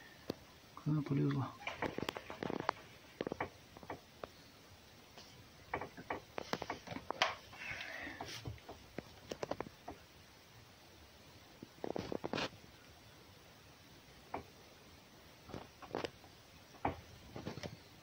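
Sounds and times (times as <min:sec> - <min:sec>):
scratchy rustle: 0:11.8 - 0:12.6.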